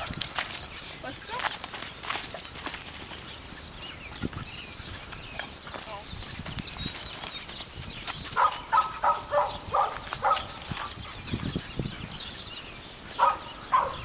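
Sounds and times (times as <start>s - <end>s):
dog yipping: 8.4s - 10.6s, 13.2s - 14.0s.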